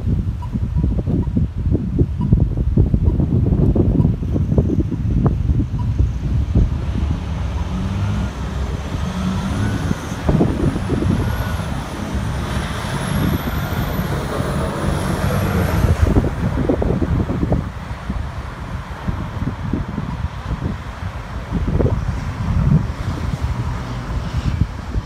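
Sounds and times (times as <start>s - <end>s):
road traffic passing: 0.0s - 25.0s
truck engine rumbling with whine: 0.0s - 25.0s
wind buffeting microphone: 0.0s - 25.0s.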